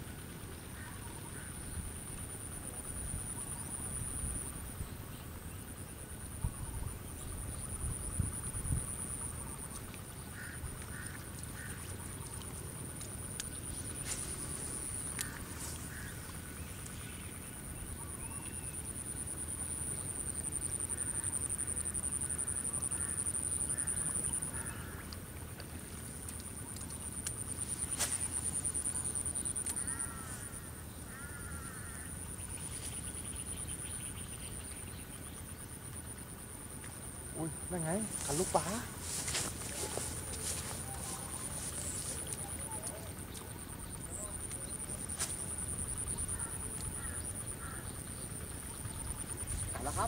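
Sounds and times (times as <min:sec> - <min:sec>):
bird calls: 0:27.6 - 0:35.3, 0:37.4 - 0:50.0
high-pitched insect drone: 0:37.1 - 0:50.0.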